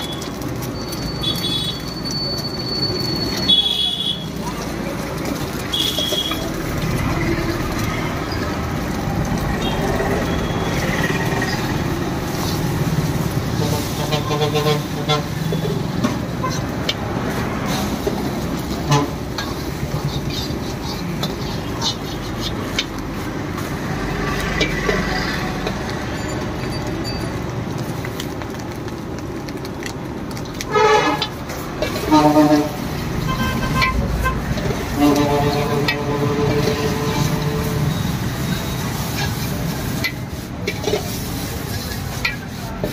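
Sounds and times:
eggs sizzling in a wok: 0.0s - 42.9s
street traffic: 0.0s - 42.9s
steel ladle scraping a wok: 0.3s - 27.2s, 30.6s - 42.9s
vehicle horns honking: 1.2s - 1.9s, 3.3s - 4.3s, 5.7s - 6.4s, 18.8s - 19.2s, 30.7s - 31.3s, 31.9s - 38.8s.

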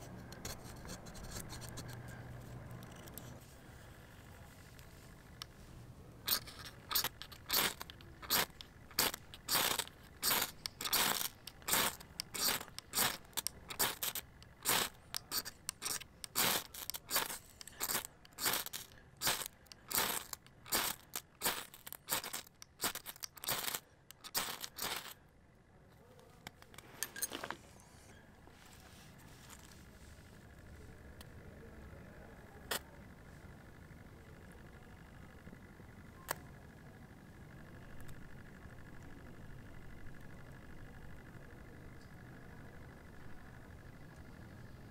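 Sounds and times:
striker scraping ferro rod: 6.3s - 25.2s.

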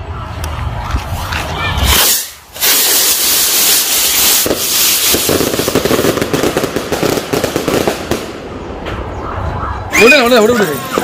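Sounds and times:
firework crackle: 1.0s - 8.4s
rockets launching with rushing hiss: 1.8s - 8.3s.

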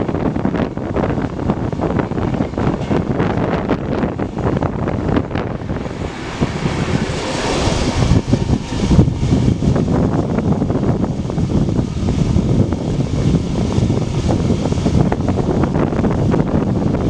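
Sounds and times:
wheels clattering over rail joints: 0.0s - 11.0s
train wheels rumbling: 0.0s - 17.0s
wind on microphone: 0.0s - 17.0s.

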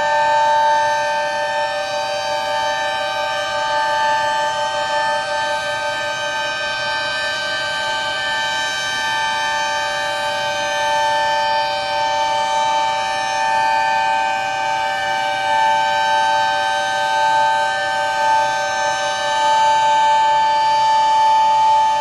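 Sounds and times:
sirens steady tone: 0.0s - 22.0s.

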